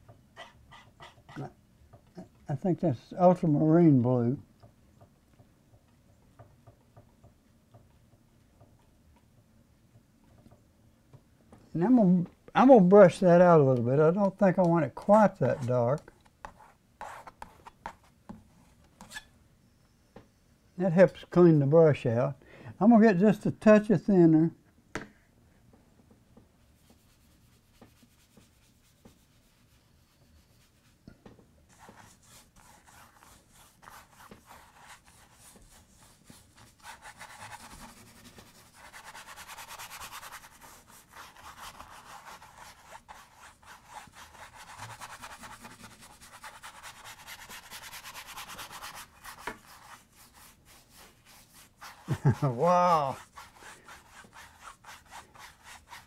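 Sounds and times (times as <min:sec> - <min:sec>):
paintbrush scrubbing canvas: 0:00.4 - 0:01.6, 0:26.6 - 0:31.0, 0:31.7 - 0:56.0.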